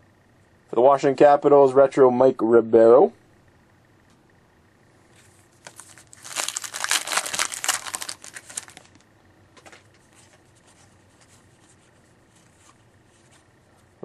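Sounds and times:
cards ticking: 0:05.6 - 0:09.0
wrapper tearing and crinkling: 0:05.6 - 0:09.0.

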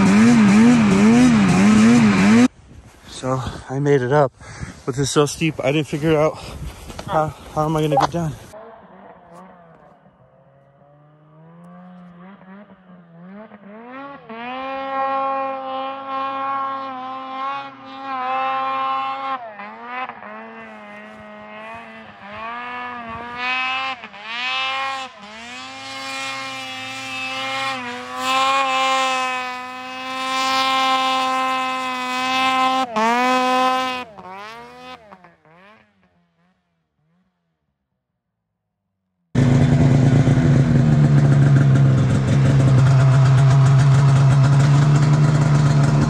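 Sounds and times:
snowmobile engine revving: 0:00.0 - 0:37.5, 0:39.4 - 0:46.0.

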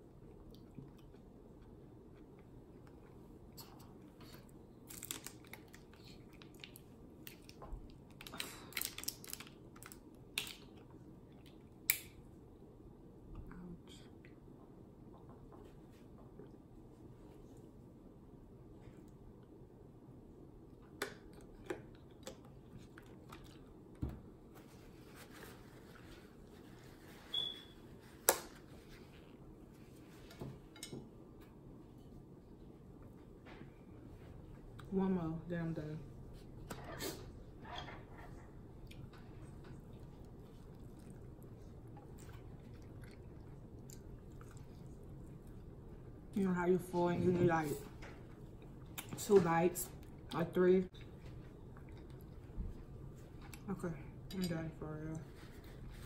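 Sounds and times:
chewing chicken wing: 0:38.8 - 0:45.8.

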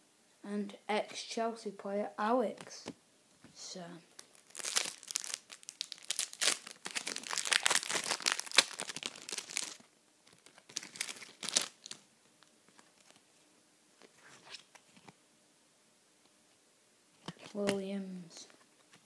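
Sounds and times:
plastic wrapper crinkling: 0:04.1 - 0:13.2.

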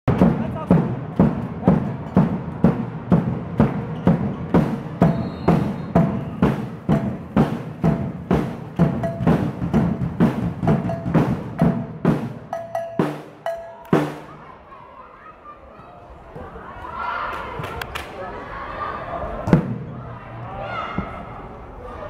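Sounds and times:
drums beating steady rhythm: 0:00.0 - 0:14.5.

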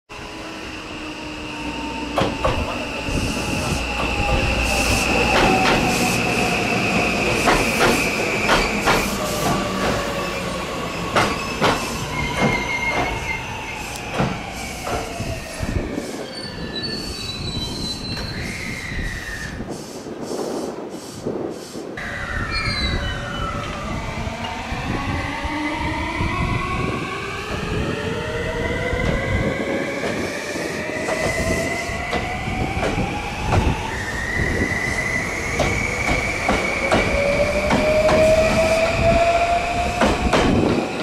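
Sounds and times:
electric train inverter whining: 0:00.1 - 0:19.5, 0:22.0 - 0:41.0
wheels clacking over rail joints: 0:07.2 - 0:10.1, 0:11.1 - 0:13.2, 0:35.5 - 0:39.0.

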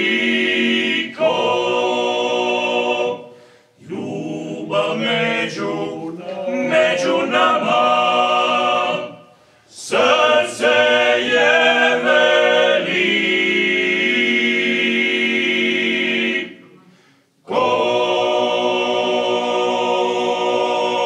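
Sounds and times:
male a cappella ensemble singing: 0:00.0 - 0:21.0.

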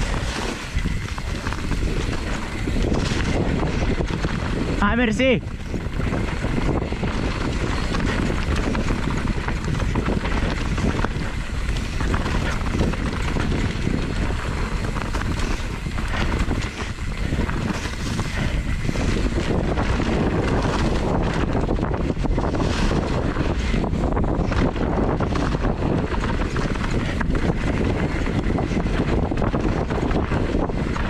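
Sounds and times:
wind buffeting the microphone: 0:00.0 - 0:31.0.

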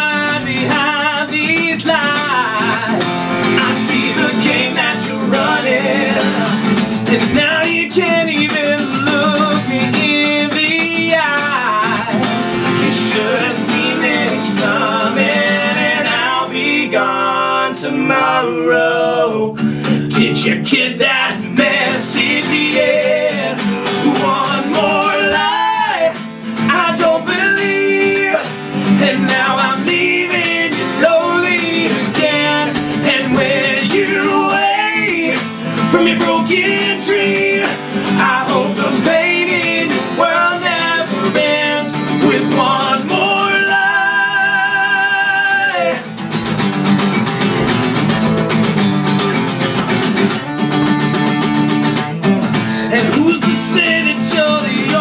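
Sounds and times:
second man singing along: 0:00.0 - 0:46.1, 0:52.7 - 0:55.0
man singing rock song: 0:00.0 - 0:46.3, 0:52.7 - 0:55.0
acoustic guitar strummed: 0:00.0 - 0:55.0.

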